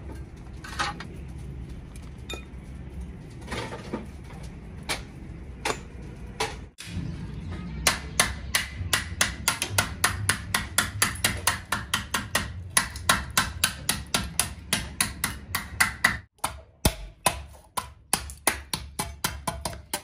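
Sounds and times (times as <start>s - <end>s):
hammer striking rapidly: 7.8s - 20.0s.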